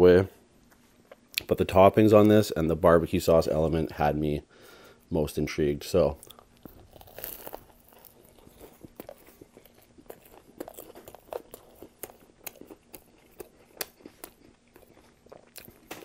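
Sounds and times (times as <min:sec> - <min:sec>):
crunching bread crust: 0:06.2 - 0:16.0.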